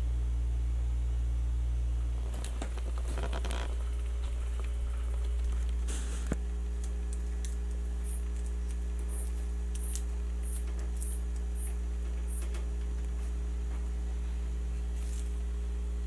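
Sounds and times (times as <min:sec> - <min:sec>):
low electrical hum: 0:00.0 - 0:16.0
paper packets crinkling: 0:02.2 - 0:13.3, 0:14.9 - 0:15.5.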